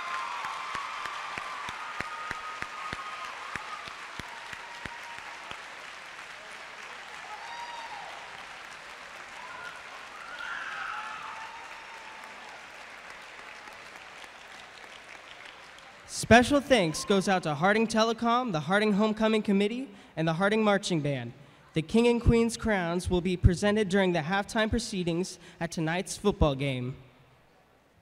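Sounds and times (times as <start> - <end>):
audience applauding: 0.0 - 16.1.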